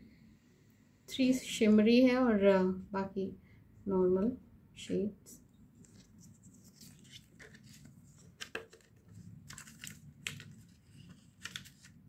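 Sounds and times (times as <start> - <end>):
cardboard palette taps and rustles: 5.8 - 10.8.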